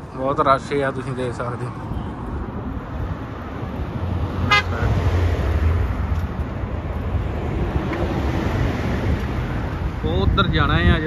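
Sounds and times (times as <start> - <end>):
traffic engines running: 0.0 - 11.0
short horn toot: 4.5 - 4.9.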